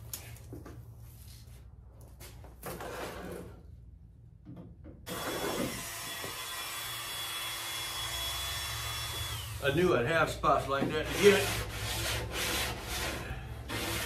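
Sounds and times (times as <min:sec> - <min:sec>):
rotary tool whining: 0:05.1 - 0:09.6.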